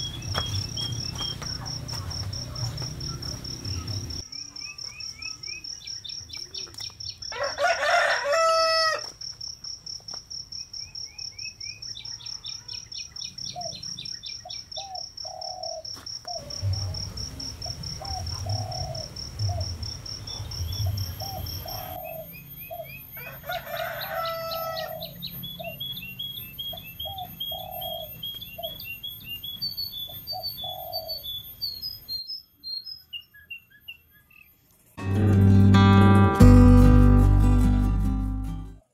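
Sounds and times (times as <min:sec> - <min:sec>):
small birds chirping: 0:00.0 - 0:07.4, 0:10.0 - 0:35.0
rooster crowing: 0:07.3 - 0:09.1, 0:21.6 - 0:25.7.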